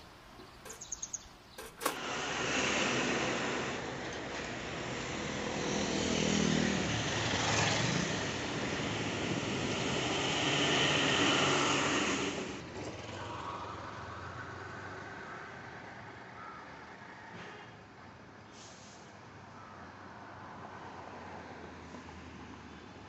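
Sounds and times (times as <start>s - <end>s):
motor vehicles passing: 0.6s - 17.1s.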